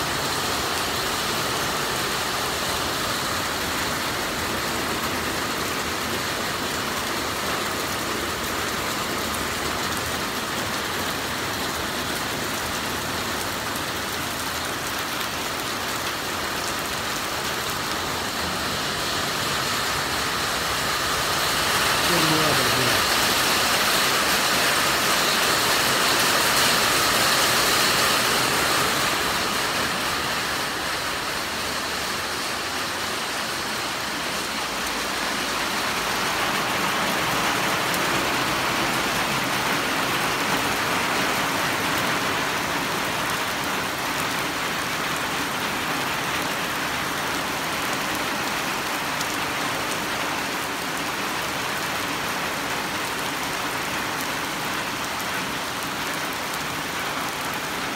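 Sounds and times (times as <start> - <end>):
steady rain falling: 0.0 - 57.9.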